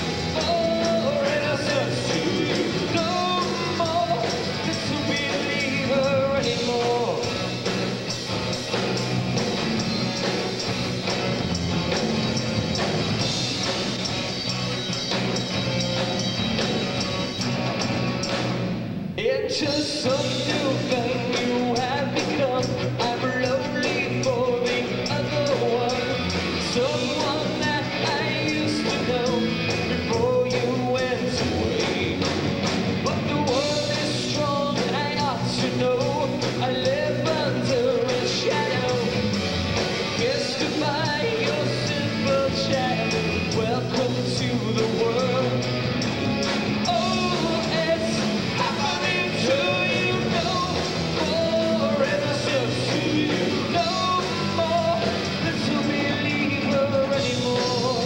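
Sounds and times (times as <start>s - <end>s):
person singing: 0.0s - 7.5s, 19.2s - 32.4s, 33.0s - 45.8s, 46.7s - 58.0s
rock band playing live: 0.0s - 58.0s.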